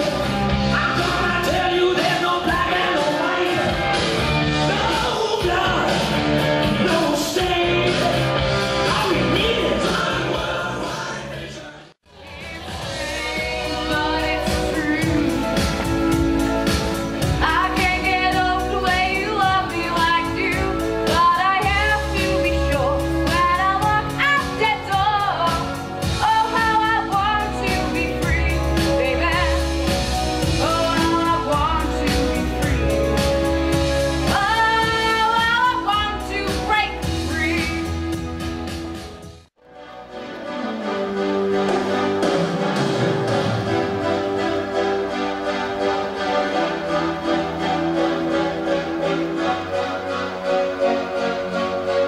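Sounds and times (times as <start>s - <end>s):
several voices singing: 6.8s - 15.8s
instrumental backing with bass beat: 12.1s - 39.5s.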